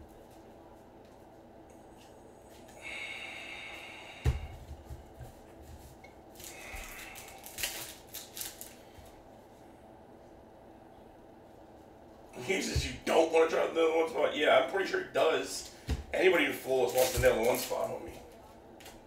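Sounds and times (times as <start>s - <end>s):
cards and wrapper rustling: 6.4s - 9.0s, 16.8s - 18.2s.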